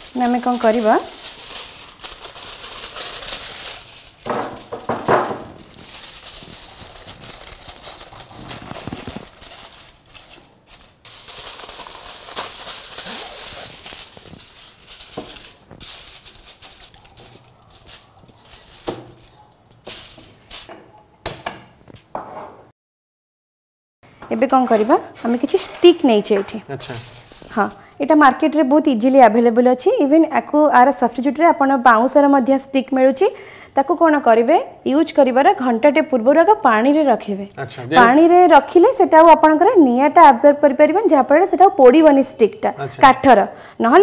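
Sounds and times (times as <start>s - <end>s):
kitchen foil crinkling: 0.0s - 20.7s, 24.5s - 28.1s.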